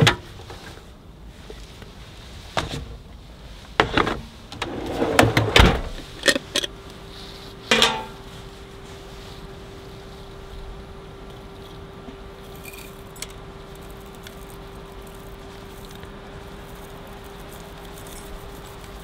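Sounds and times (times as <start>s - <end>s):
steady hum: 3.8s - 18.8s
tea leaves pattering and rustling: 6.0s - 19.0s.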